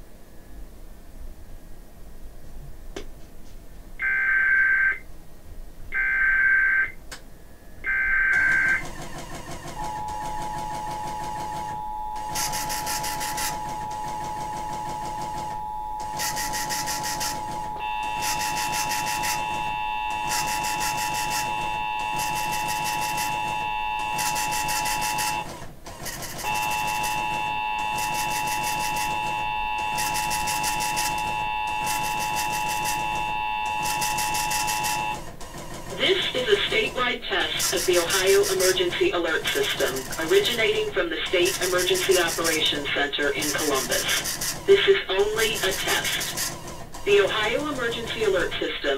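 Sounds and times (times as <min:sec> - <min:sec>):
two-tone alert signal: 0:04.0 - 0:05.0, 0:06.0 - 0:07.0, 0:07.9 - 0:08.9, 0:09.8 - 0:25.4, 0:26.4 - 0:35.2
radio hiss: 0:36.0 - 0:37.8.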